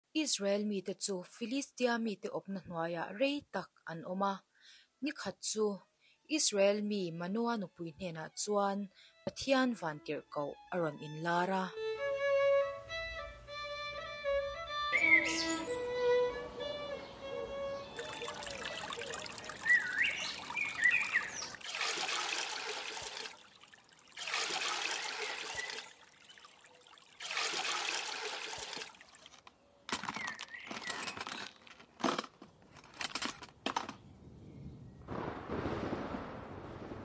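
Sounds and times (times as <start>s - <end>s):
water pouring: 18.0s - 29.5s
water splashing: 18.0s - 29.5s.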